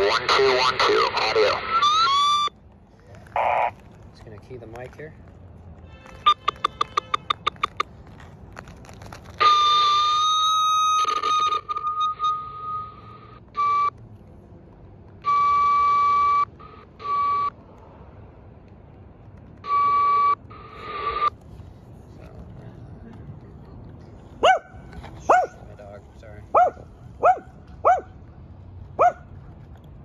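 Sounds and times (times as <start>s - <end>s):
high whistling tone from radio: 0.0s - 2.5s, 10.8s - 13.9s.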